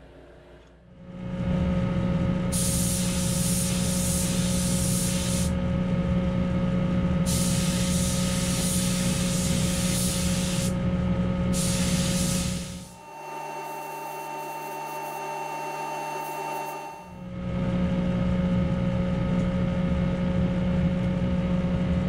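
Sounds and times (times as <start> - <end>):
steady low hum: 0.0 - 22.0
spray gun hissing: 2.6 - 5.5, 7.3 - 10.7, 11.6 - 13.0.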